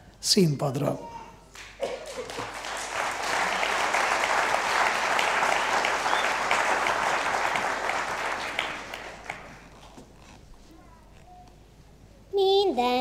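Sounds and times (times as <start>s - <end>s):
audience applauding: 1.6s - 9.8s.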